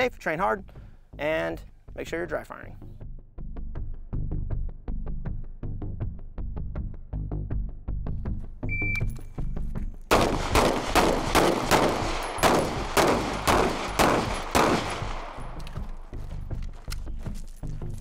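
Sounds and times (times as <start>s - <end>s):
handgun shots with ringing tail: 10.1s - 16.0s.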